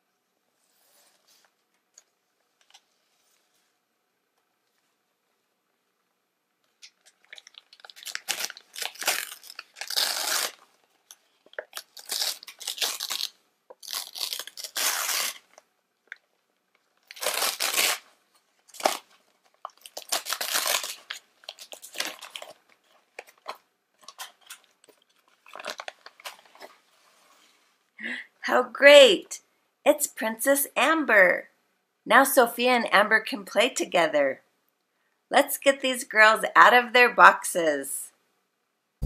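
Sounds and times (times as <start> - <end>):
wrapping paper tearing: 7.0 - 15.6, 17.0 - 26.7.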